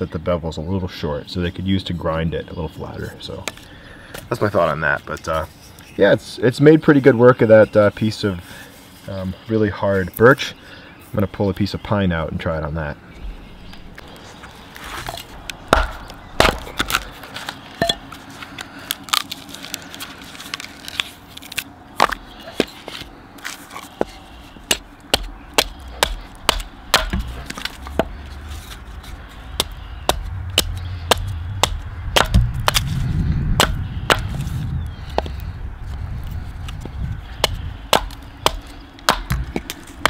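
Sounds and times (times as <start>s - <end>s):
low rumble: 13.2s - 18.3s, 24.2s - 40.0s
axe chopping wood: 14.9s - 18.2s, 22.0s - 28.2s, 29.6s - 32.9s, 33.6s - 34.4s, 37.4s - 40.0s.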